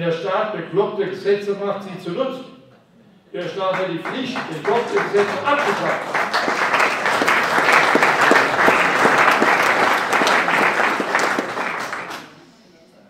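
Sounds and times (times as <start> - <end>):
audience applauding: 3.7 - 12.4.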